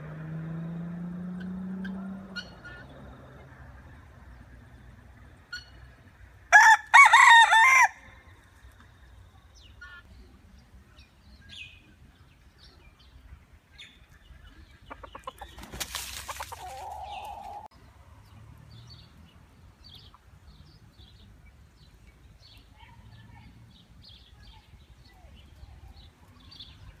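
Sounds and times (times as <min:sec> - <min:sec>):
rooster crowing: 0:06.5 - 0:08.0
faint small birds chirping: 0:08.2 - 0:27.0
rustling: 0:15.6 - 0:17.7.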